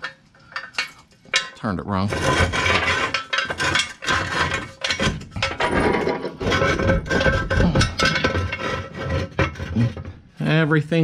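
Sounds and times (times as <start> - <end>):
metal jack stand clanking: 0.0 - 9.7.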